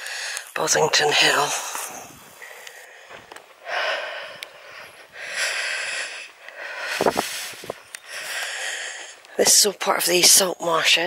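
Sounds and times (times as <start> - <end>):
person breathing heavily: 0.0 - 0.5, 1.5 - 9.3.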